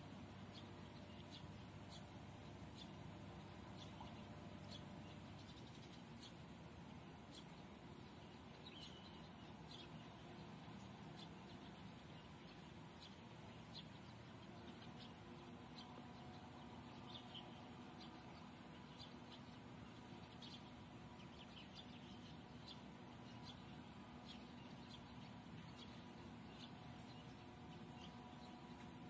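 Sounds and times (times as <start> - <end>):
low steady background noise: 0.0 - 29.0
small birds chirping: 0.0 - 29.0.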